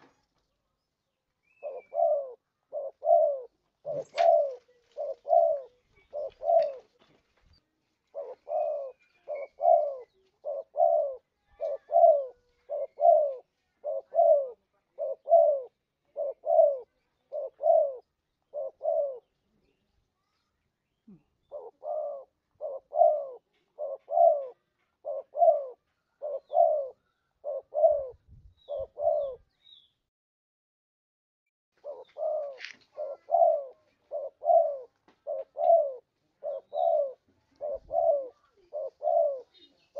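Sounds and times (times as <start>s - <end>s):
dove cooing: 1.4s - 7.0s, 8.1s - 19.8s, 21.1s - 29.5s, 31.8s - 39.9s.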